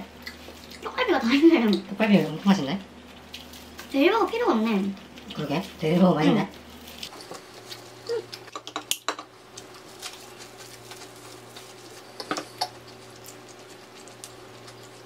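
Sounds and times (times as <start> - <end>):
steady low hum: 0.0 - 15.0
plastic wrap crinkling: 9.6 - 15.0.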